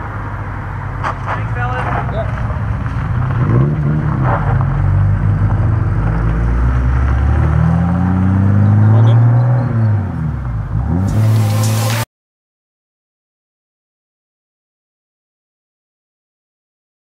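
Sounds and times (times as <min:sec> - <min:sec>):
car driving past accelerating: 0:02.4 - 0:12.1
short burst of noise: 0:11.0 - 0:12.1.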